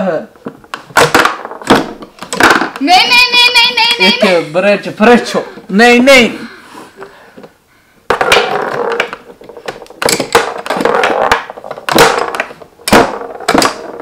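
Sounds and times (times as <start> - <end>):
foosball rods rattling: 0.4 - 2.9, 8.1 - 14.0
players clacking against ball: 8.1 - 14.0.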